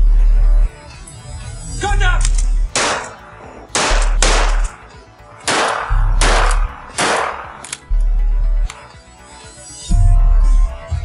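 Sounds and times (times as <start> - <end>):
music with heavy bass beat: 0.0 - 11.0
shotgun shots echoing: 2.2 - 4.8, 5.4 - 7.8.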